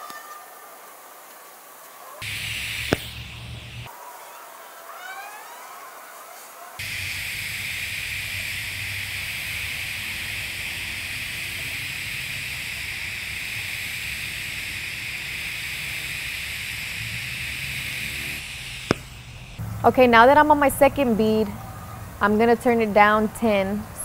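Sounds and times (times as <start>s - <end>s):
low hum: 2.2s - 3.9s, 6.8s - 22.2s
welding arc hissing: 2.2s - 3.9s, 6.8s - 19.9s.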